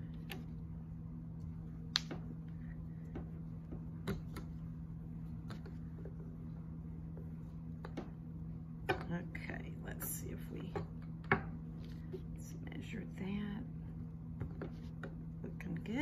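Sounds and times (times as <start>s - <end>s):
rolling pin rolling clay: 0.0s - 12.4s, 14.3s - 16.0s
steady low hum: 0.0s - 16.0s.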